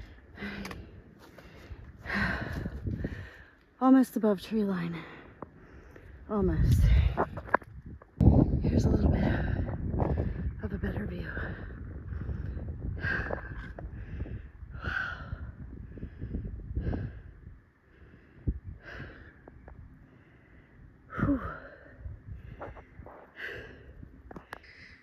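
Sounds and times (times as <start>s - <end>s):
person breathing hard: 0.0s - 3.6s, 11.4s - 25.0s.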